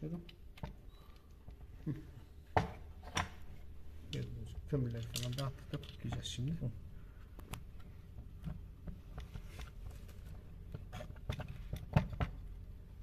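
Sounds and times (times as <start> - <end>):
plastic and metal parts clicking: 4.1 - 6.3.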